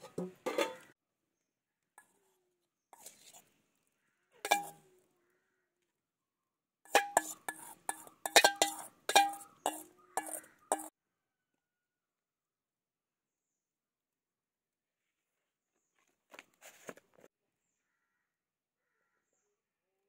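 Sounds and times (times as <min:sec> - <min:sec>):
utensil knocking on metal bowl: 0:04.5 - 0:04.8, 0:06.9 - 0:10.9.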